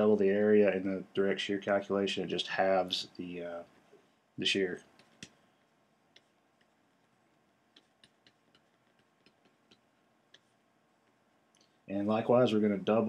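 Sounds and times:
stylus tapping on tablet: 7.7 - 10.5.

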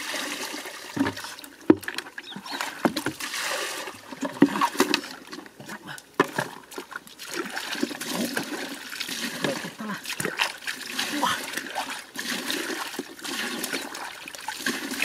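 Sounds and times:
water poured out of bucket: 0.0 - 5.5, 6.3 - 15.0
bucket knocking on wooden hull: 0.9 - 3.3, 6.2 - 6.7.

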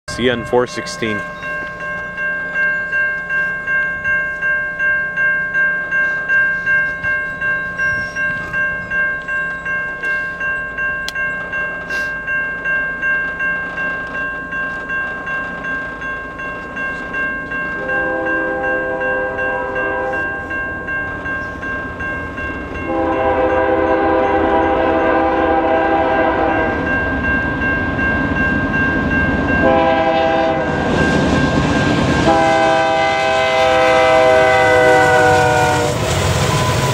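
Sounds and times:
railway crossing bell ringing: 0.1 - 36.9
train rumble: 0.1 - 36.9
locomotive air horn blasts: 17.8 - 20.4, 22.9 - 26.8, 29.6 - 30.9, 32.2 - 36.0.

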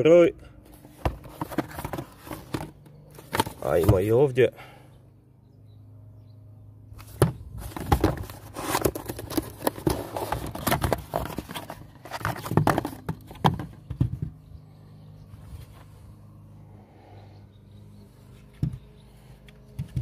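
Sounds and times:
cardboard rustling and scraping: 0.7 - 4.1, 7.0 - 14.4
plastic knocks: 12.2 - 14.4.

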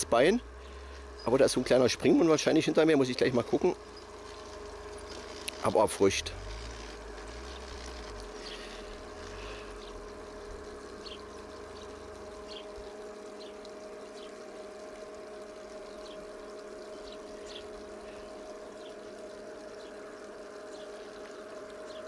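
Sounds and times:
small fountain splashing: 0.0 - 22.0
steady two-tone hum: 0.0 - 22.0
faint ticks: 3.9 - 5.7.

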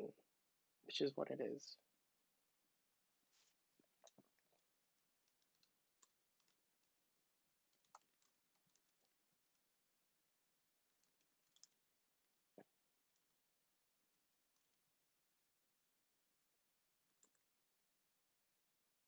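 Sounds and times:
faint keystrokes on a keyboard: 3.8 - 7.0, 7.6 - 9.7, 10.8 - 11.9, 14.5 - 14.8, 17.0 - 17.6.

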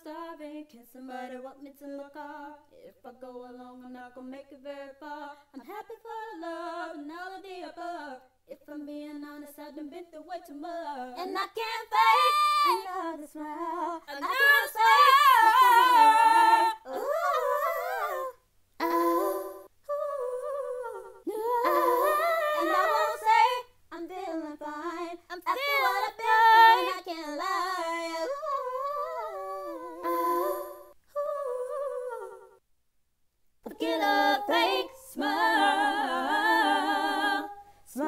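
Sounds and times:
woman singing unaccompanied: 0.0 - 32.6, 33.6 - 38.0.

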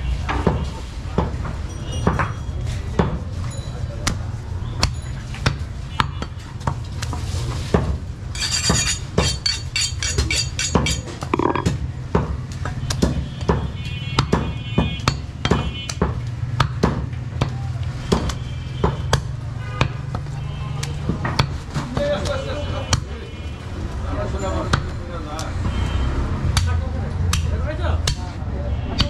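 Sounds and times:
cleaver chopping meat on wood: 10.3 - 20.3, 26.5 - 28.3.

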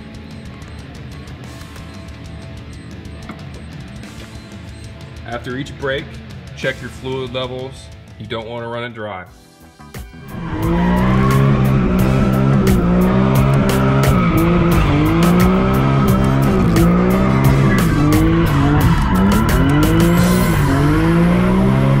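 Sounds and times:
car engine revving high: 10.2 - 22.0
tyres squealing: 10.6 - 21.2.

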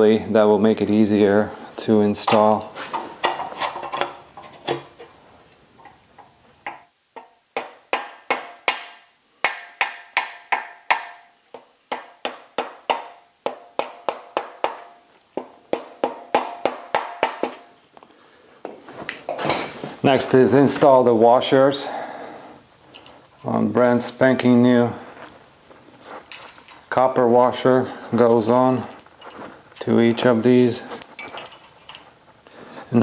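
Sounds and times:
rubber mallet tapping metal: 6.7 - 15.0.

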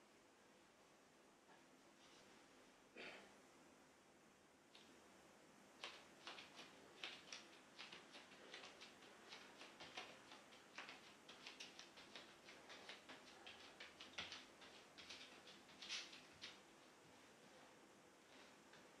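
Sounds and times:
bare feet on foam mat: 5.8 - 19.0.

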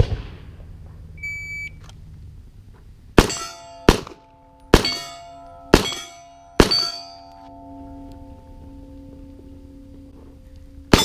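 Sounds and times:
pistol shots: 3.2 - 7.1
steel plate targets ringing: 3.2 - 11.0.

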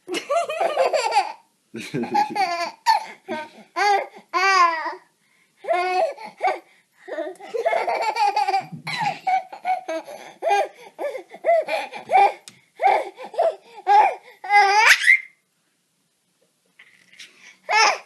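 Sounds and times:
baby laughing: 0.1 - 5.0, 5.6 - 15.2, 17.7 - 18.0
baby squealing: 10.4 - 15.4, 17.7 - 18.0.

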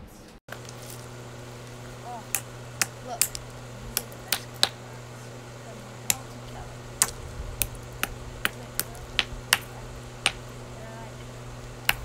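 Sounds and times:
steady low hum: 0.0 - 12.0
stones clacking together: 6.0 - 10.6.

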